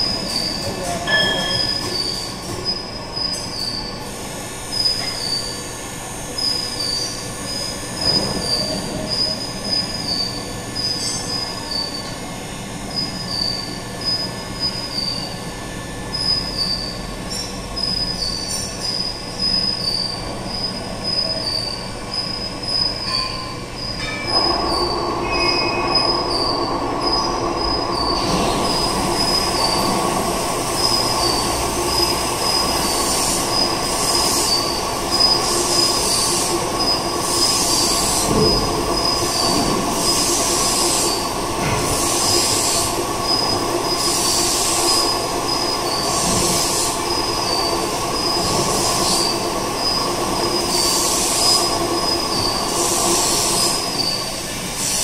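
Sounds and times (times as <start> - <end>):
high-pitched pulsing squeal: 12.9 - 41.4, 42.0 - 55.0.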